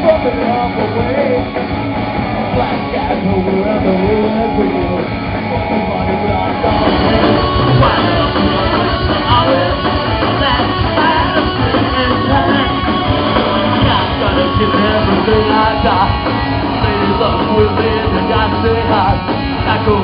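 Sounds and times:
bass guitar: 0.0s - 20.0s
distorted electric guitar: 0.0s - 20.0s
drum kit: 0.0s - 20.0s
vocals: 0.0s - 20.0s.

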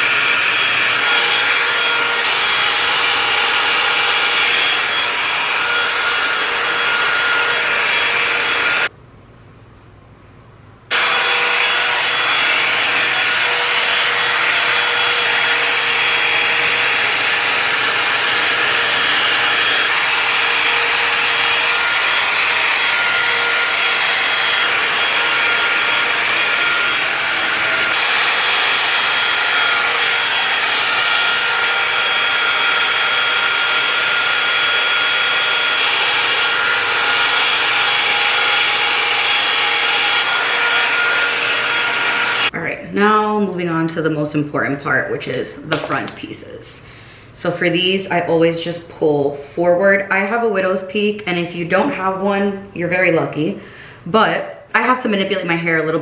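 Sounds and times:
motor whine: 10.9s - 42.5s.

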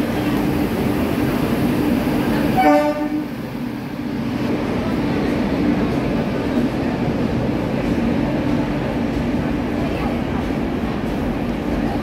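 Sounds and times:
passenger train rolling past: 0.0s - 12.0s
train horn blast: 2.6s - 3.4s.

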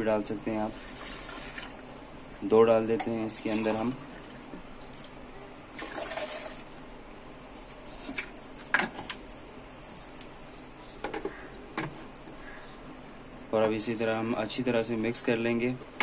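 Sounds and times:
kitchenware clicking and clattering: 8.0s - 10.0s.

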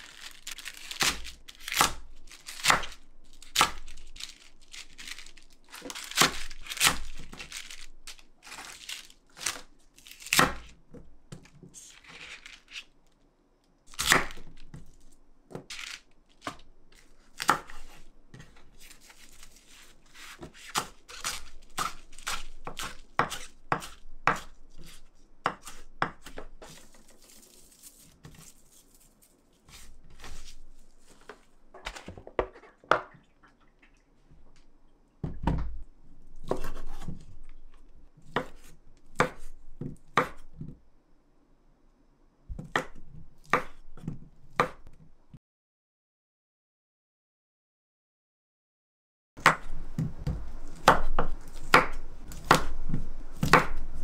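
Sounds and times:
leaves rustling: 0.0s - 10.4s, 26.8s - 31.3s
knife slicing cabbage: 0.0s - 10.8s, 13.9s - 15.0s, 15.6s - 30.7s, 36.4s - 37.3s, 38.2s - 40.7s, 49.4s - 54.0s.

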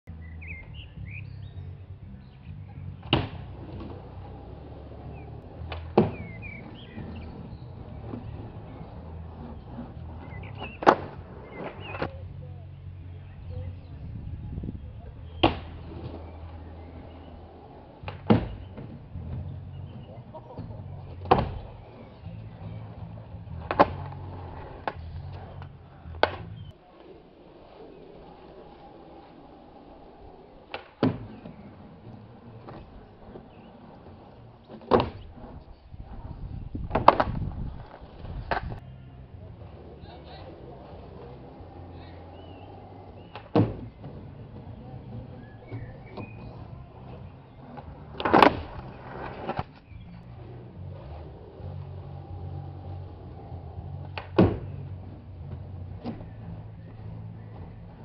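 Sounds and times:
birds chirping: 0.1s - 58.0s
skateboard slapping down on ramp: 3.0s - 3.9s, 10.1s - 12.1s, 15.4s - 16.2s, 18.0s - 19.0s, 20.0s - 21.8s, 30.7s - 33.4s, 34.8s - 35.4s, 43.0s - 45.0s, 47.0s - 49.7s, 54.0s - 55.0s
skateboard knocking on ramp: 5.6s - 12.1s, 17.5s - 22.9s, 23.5s - 26.6s, 30.7s - 35.5s, 41.2s - 49.7s, 51.5s - 58.0s.

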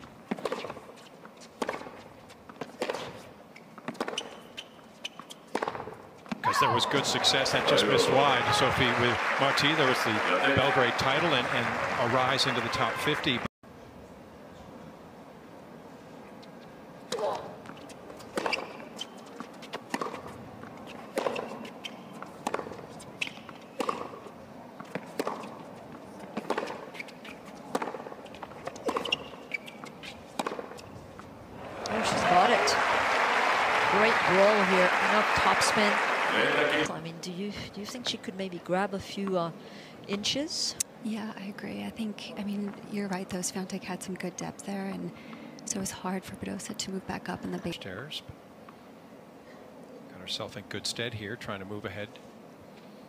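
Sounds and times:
tennis racket hitting ball: 0.3s - 0.9s, 1.6s - 2.0s, 2.6s - 4.4s, 5.5s - 6.5s, 21.0s - 24.3s, 24.9s - 25.7s, 26.3s - 27.0s, 27.6s - 30.8s
tennis ball bouncing on hard court: 0.3s - 6.5s, 17.1s - 25.7s, 26.3s - 31.3s.

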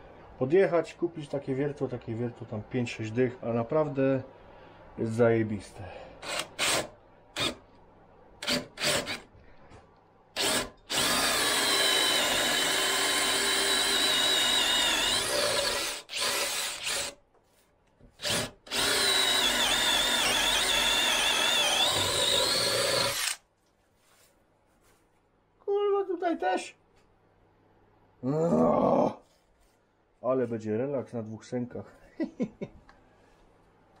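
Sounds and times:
cordless drill boring into wood: 6.2s - 7.6s, 8.4s - 9.3s, 10.4s - 17.2s, 18.2s - 23.4s.

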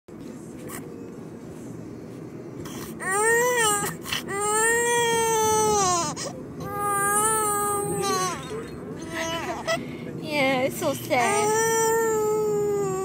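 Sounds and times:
infant crying: 3.0s - 9.8s, 11.2s - 13.0s.

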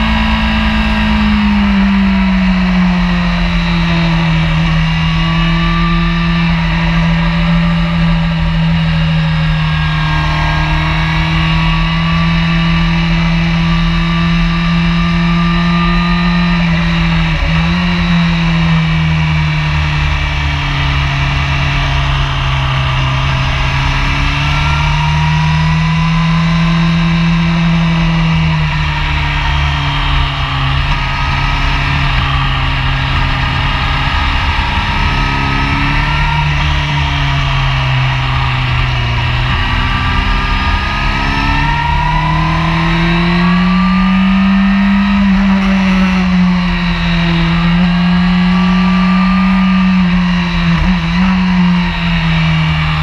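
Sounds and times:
wind rush on microphone: 0.0s - 6.0s
motorcycle engine running hard: 0.0s - 53.0s.

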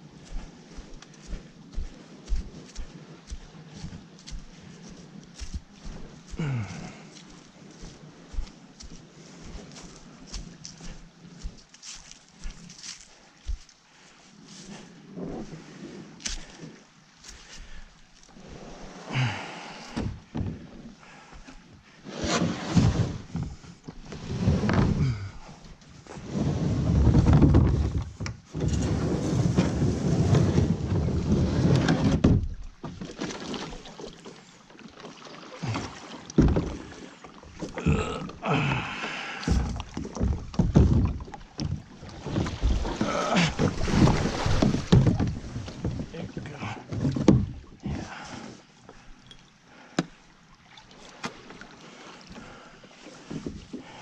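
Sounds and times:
paddle strokes splashing water: 0.0s - 27.1s, 28.8s - 54.0s
kayak hull scraping over rocks: 0.0s - 49.1s, 50.9s - 54.0s
kayak knocking on rocks: 39.0s - 46.1s.

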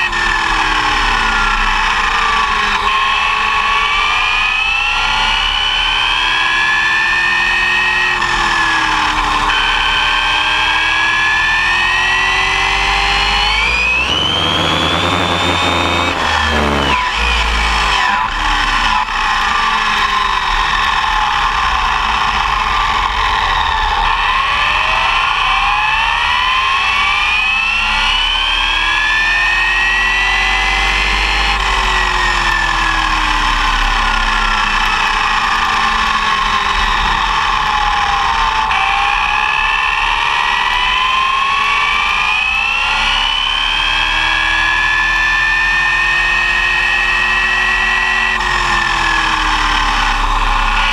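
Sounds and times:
electric motor whine: 9.2s - 18.8s
road and wind rumble: 13.6s - 17.2s.

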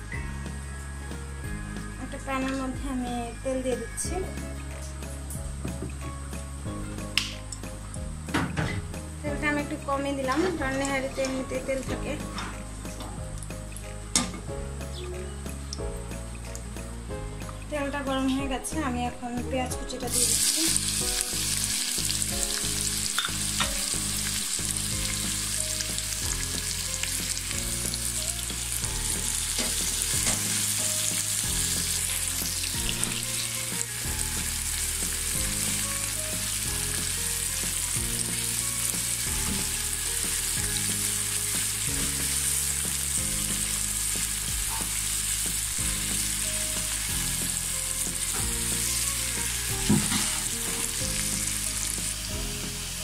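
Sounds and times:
onions sizzling in hot oil: 20.0s - 53.0s.

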